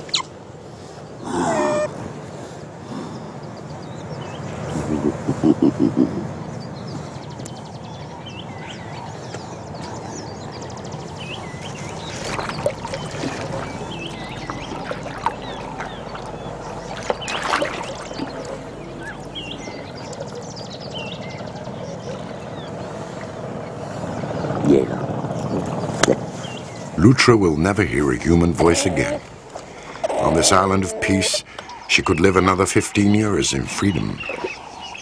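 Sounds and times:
small birds chirping: 0.0 - 35.0
low background rumble: 4.7 - 28.6.

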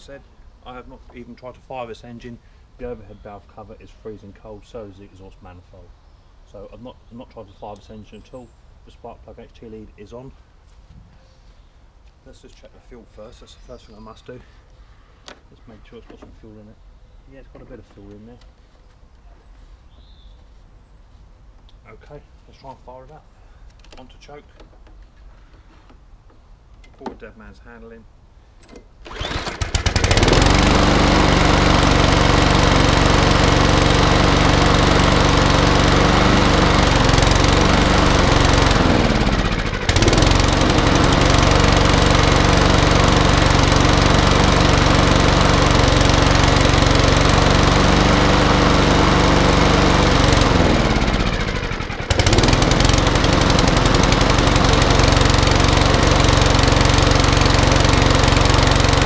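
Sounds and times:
lawnmower engine pull-started: 28.6 - 59.0
lawnmower engine running: 29.0 - 59.0.

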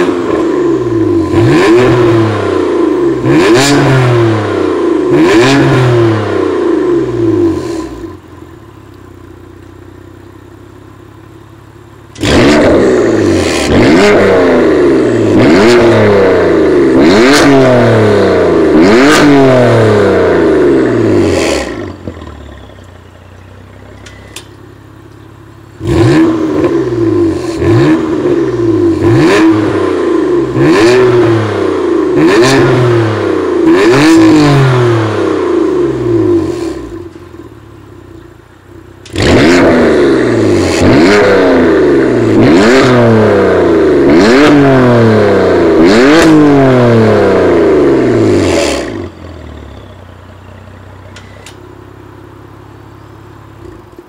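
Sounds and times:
car engine revving: 0.0 - 8.4, 10.7 - 54.0
car engine idling: 6.4 - 15.6, 19.7 - 30.7, 35.2 - 40.9, 47.3 - 54.0.

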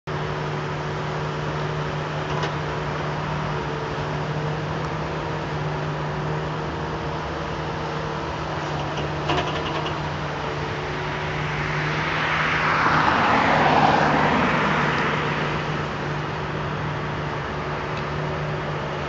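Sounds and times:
jet engines at taxi power: 0.1 - 19.0.

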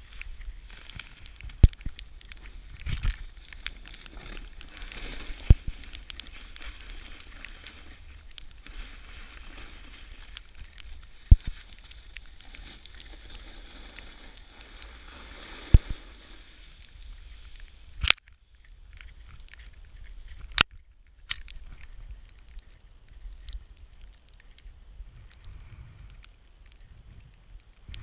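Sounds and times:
snowboard scraping over snow: 0.0 - 17.9.

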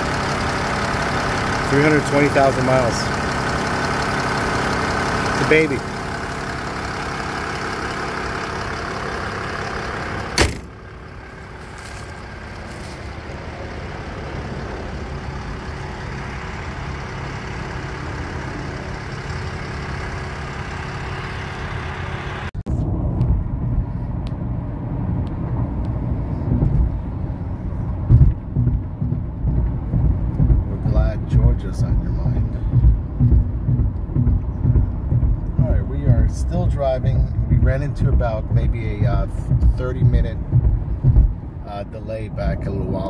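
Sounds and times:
diesel engine idling: 0.0 - 43.0
highway driving rumble inside car: 10.2 - 20.0, 22.7 - 43.0
car hood slammed shut: 10.4 - 10.8.

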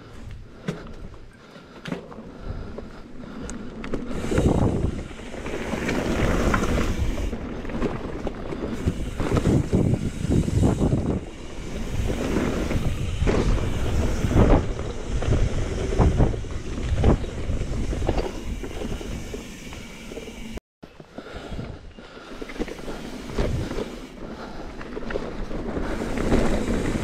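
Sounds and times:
bike knocking and rattling: 0.5 - 21.5
wind rushing over microphone: 4.1 - 7.6, 8.6 - 20.6, 23.2 - 24.0.

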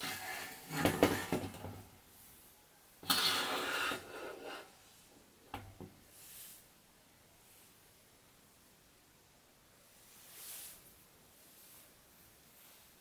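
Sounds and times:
knocks and scrapes of metal frame: 0.0 - 1.9
hissing scrape: 3.0 - 4.8.

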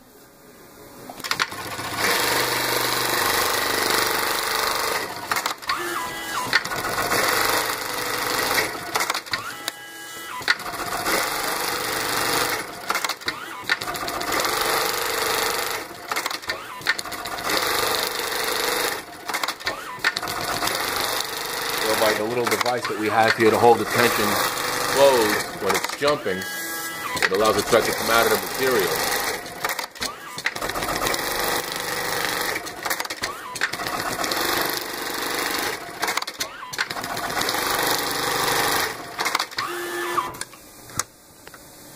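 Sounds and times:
sewing machine sewing at speed: 1.2 - 9.7, 10.3 - 40.4
sharp clicks of sewing machine: 1.2 - 26.4, 27.0 - 40.5.

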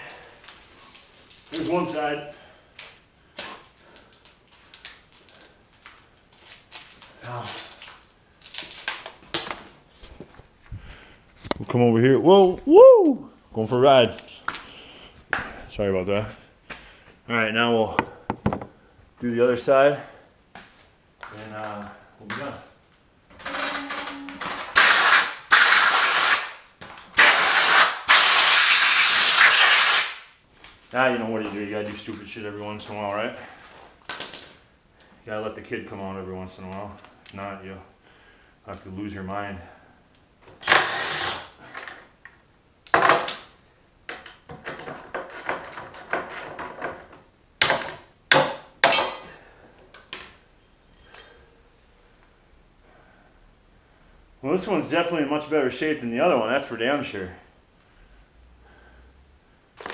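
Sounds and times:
power tool bursts: 23.4 - 26.6, 40.6 - 41.5.

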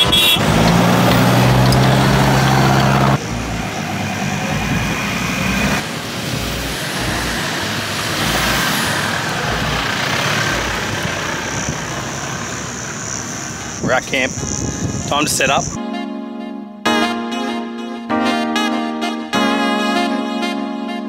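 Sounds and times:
vehicle engine running: 0.0 - 15.8.

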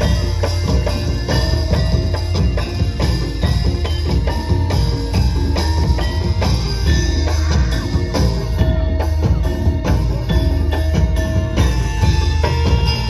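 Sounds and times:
drum beat with low drum: 0.0 - 13.0.

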